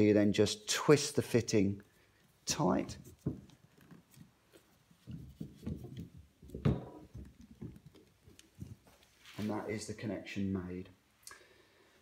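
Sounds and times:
plastic fitting rubbing and knocks: 2.9 - 9.0.

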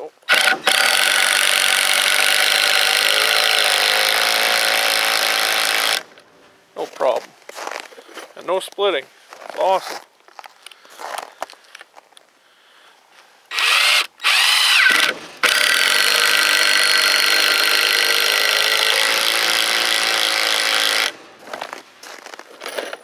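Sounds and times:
cordless drill driving screw: 0.2 - 6.1, 13.5 - 21.2.

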